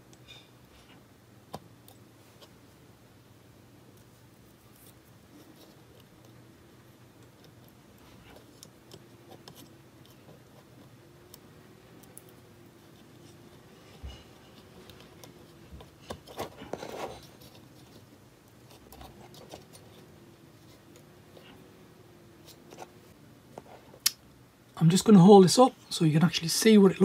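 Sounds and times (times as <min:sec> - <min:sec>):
small clicks and scratches: 0:00.0 - 0:02.6, 0:03.9 - 0:06.5, 0:07.1 - 0:21.7, 0:22.4 - 0:24.2.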